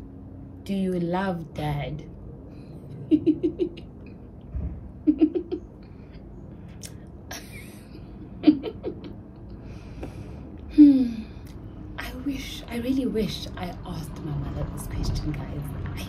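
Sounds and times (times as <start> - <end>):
woman giggling softly: 5.0 - 5.7, 7.3 - 9.2.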